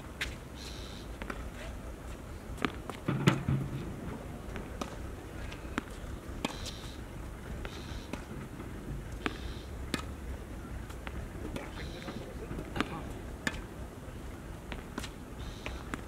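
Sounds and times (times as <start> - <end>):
tennis ball struck and bouncing: 2.6 - 3.9, 4.5 - 5.0, 7.6 - 10.2, 12.7 - 13.7.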